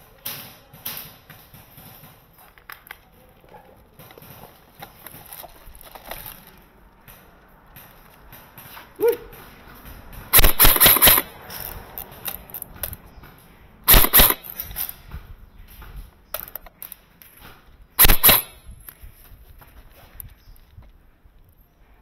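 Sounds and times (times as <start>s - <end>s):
airsoft gun bursts: 10.3s - 11.4s, 13.9s - 14.9s, 18.0s - 18.7s.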